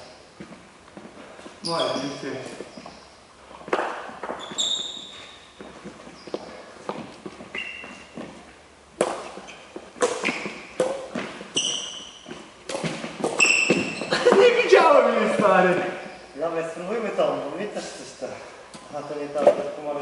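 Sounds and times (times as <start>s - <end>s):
faint taps and footsteps: 0.4s - 1.6s, 2.4s - 4.5s, 5.2s - 11.5s
sneakers squeaking on court: 0.4s - 14.6s
rackets striking shuttlecock: 9.0s - 11.9s.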